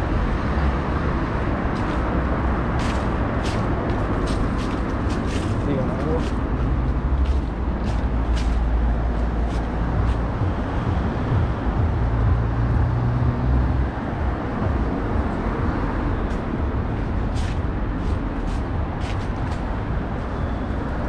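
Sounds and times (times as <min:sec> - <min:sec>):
road noise: 0:00.0 - 0:21.0.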